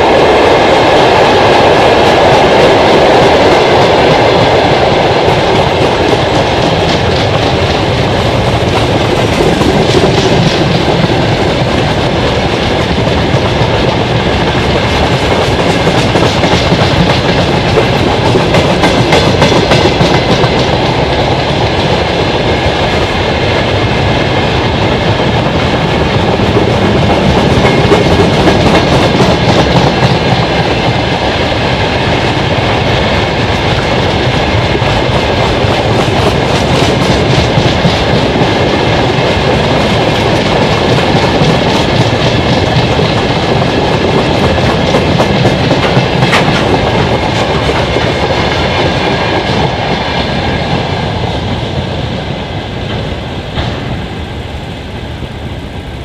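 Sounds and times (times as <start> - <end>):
freight train rumbling past: 0.0 - 56.0
wheels clacking over rail joints: 34.3 - 50.9.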